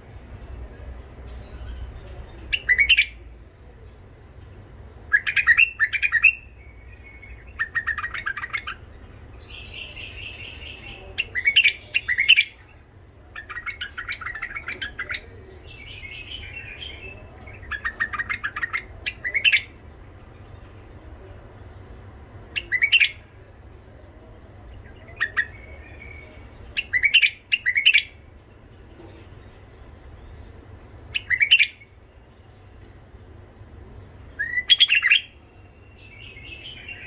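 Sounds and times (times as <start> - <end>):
bird chattering song: 1.1 - 33.1, 34.3 - 37.0
bird trill: 1.4 - 3.2, 5.1 - 12.6, 13.4 - 19.8, 22.6 - 23.2, 24.8 - 28.2, 29.4 - 32.0, 34.4 - 37.0.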